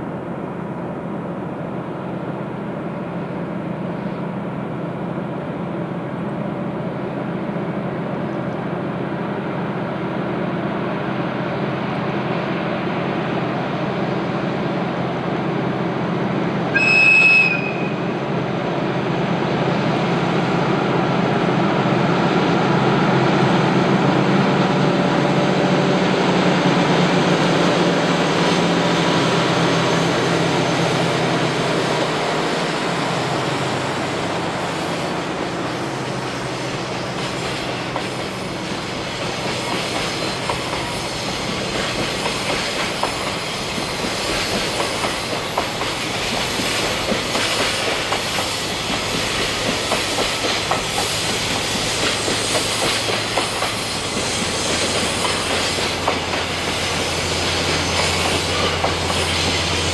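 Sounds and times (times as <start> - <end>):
diesel train running: 0.0 - 59.9
train horn blast: 16.7 - 18.1.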